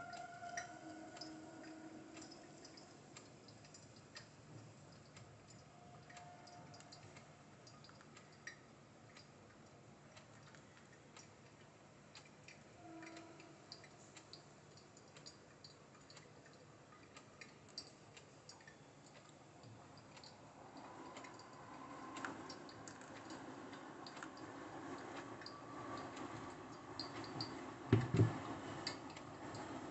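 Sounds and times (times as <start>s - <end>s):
water dripping on coffee grounds: 0.0s - 29.7s.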